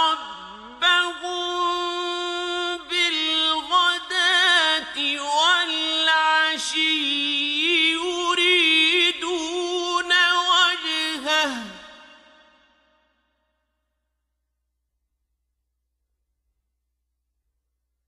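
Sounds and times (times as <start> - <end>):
man reciting melodically with echo: 0.0 - 12.9.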